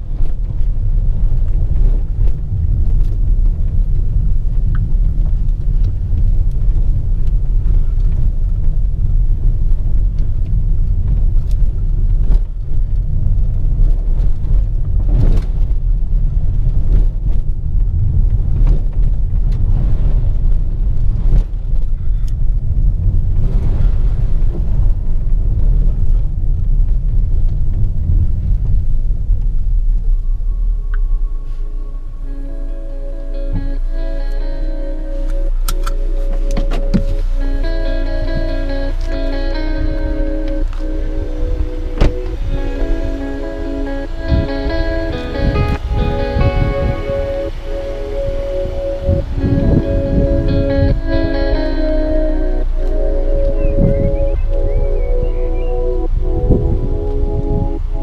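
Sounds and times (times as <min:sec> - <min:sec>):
car driving low rumble: 0:00.0 - 0:58.0.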